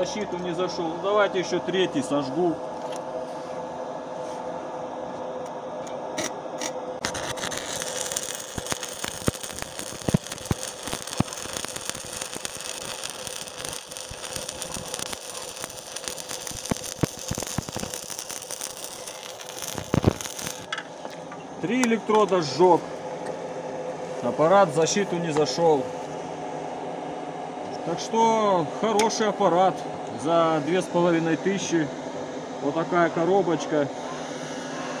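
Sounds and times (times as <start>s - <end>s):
welding arc crackling: 7.0s - 20.7s.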